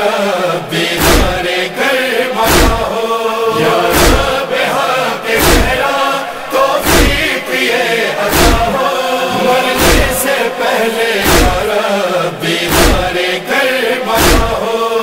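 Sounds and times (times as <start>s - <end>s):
person reciting verses: 0.0s - 15.0s
voices chanting together: 0.0s - 15.0s
deep thump: 1.0s - 1.4s, 2.5s - 2.9s, 3.9s - 4.3s, 5.4s - 5.8s, 8.3s - 8.8s, 11.2s - 11.7s, 12.7s - 13.1s, 14.2s - 14.6s.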